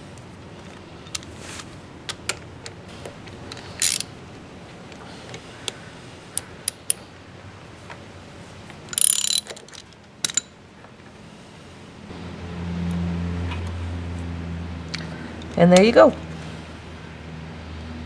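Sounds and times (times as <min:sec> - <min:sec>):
metal clicks and ticks: 0:06.3 - 0:07.0.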